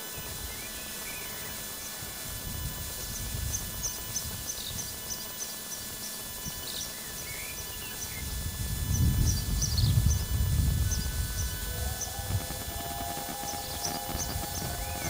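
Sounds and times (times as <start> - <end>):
small birds chirping: 2.9 - 15.0
distant steam train rumble: 7.5 - 15.0.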